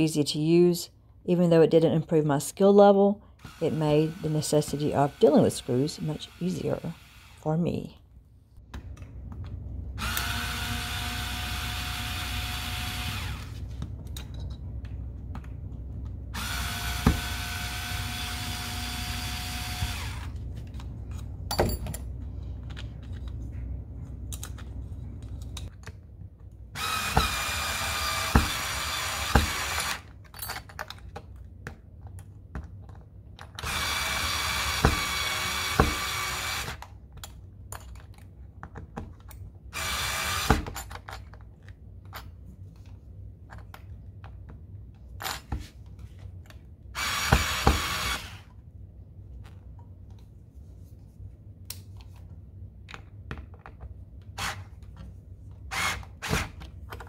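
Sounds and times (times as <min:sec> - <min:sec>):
cordless screwdriver motor whining: 0:10.0 - 0:13.6, 0:16.4 - 0:20.4, 0:47.0 - 0:48.4.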